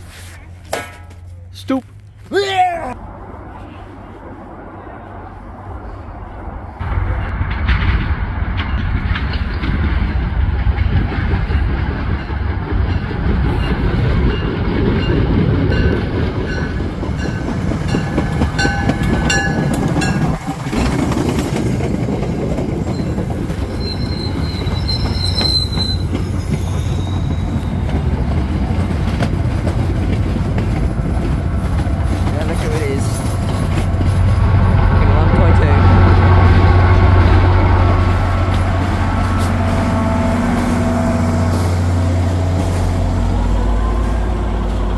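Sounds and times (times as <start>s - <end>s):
train wheels rumbling on rails: 2.4s - 44.9s
high wheel squeals: 22.8s - 28.4s.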